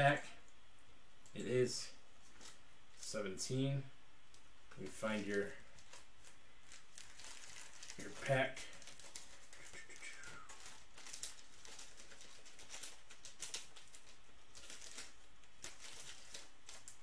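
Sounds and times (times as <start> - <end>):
foil card packs rustling: 4.8 - 17.0.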